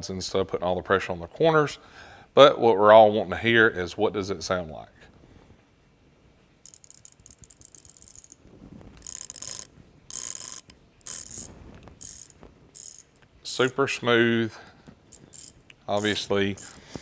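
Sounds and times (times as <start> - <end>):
ratcheting wrench clicking: 6.6 - 8.4, 9.0 - 13.8, 15.1 - 16.8.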